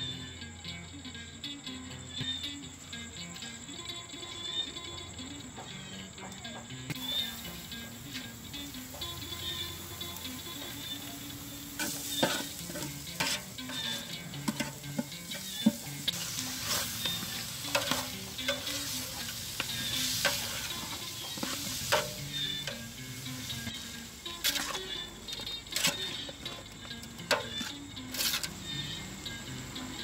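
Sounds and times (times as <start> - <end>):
meat sizzling in oil: 7.0 - 24.8
metal spoon scraping pan: 11.7 - 22.9, 23.5 - 28.6.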